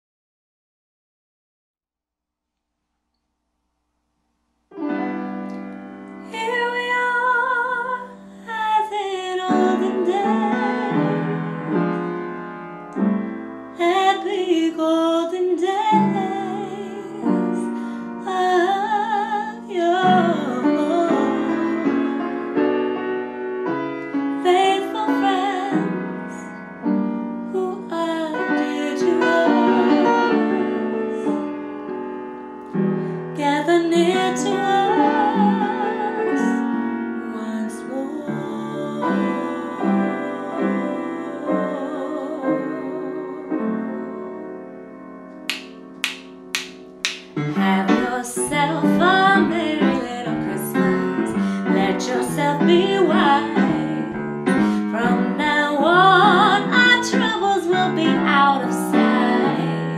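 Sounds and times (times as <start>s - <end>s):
jazz piano: 4.7s - 59.9s
woman singing with vibrato: 6.3s - 11.7s, 13.8s - 22.2s, 24.4s - 26.0s, 27.6s - 31.4s, 33.4s - 36.6s, 37.2s - 43.6s, 47.6s - 59.9s.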